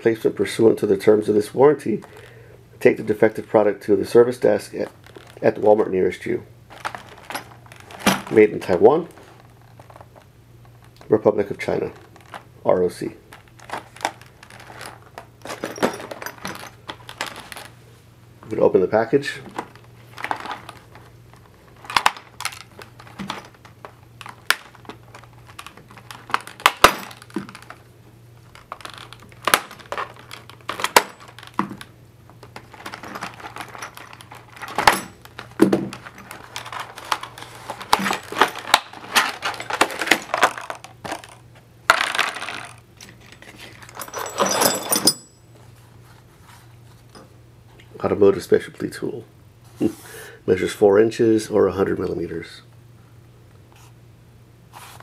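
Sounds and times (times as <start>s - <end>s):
plastic crackling: 4.9s - 5.5s, 6.7s - 11.1s, 11.9s - 12.5s, 13.3s - 15.3s, 19.5s - 42.8s
metal parts clinking: 6.7s - 8.4s, 13.3s - 17.7s, 21.8s - 27.8s, 28.5s - 45.4s.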